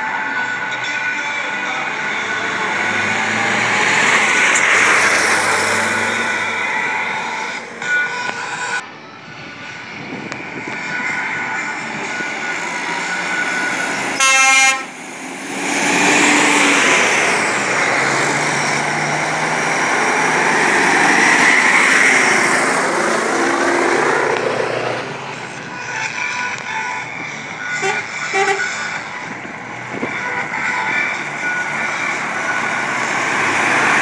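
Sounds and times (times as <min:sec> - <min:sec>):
truck diesel engine passing: 0:00.0 - 0:34.0
truck horn blast: 0:13.0 - 0:15.1, 0:27.7 - 0:28.9.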